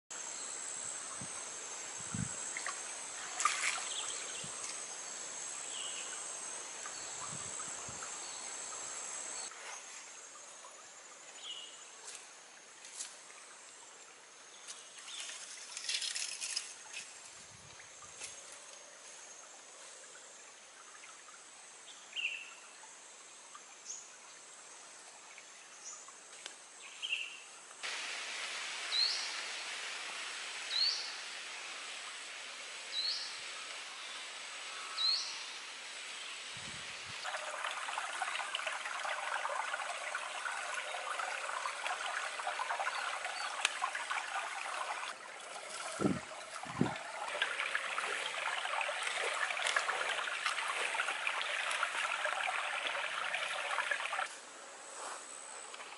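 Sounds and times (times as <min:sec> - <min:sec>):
stream water rushing: 0:00.9 - 0:09.6, 0:27.8 - 0:54.3.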